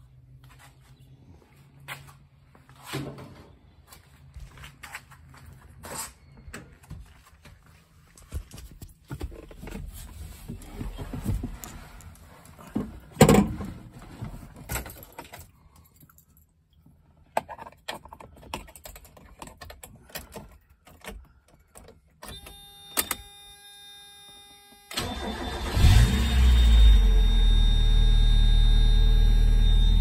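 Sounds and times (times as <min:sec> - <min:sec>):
car engine starting: 0:24.9 - 0:30.0
steady buzzing tone: 0:27.2 - 0:30.0.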